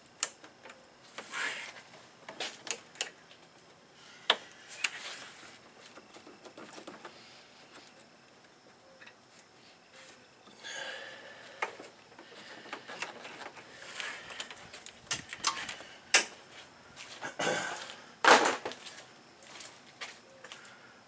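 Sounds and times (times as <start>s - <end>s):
clicks knocks and rubbing of hose: 5.8s - 7.2s.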